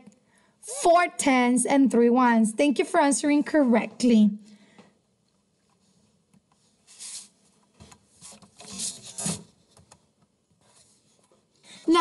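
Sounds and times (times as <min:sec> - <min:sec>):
soft rustling and rubbing: 0:10.5 - 0:11.6.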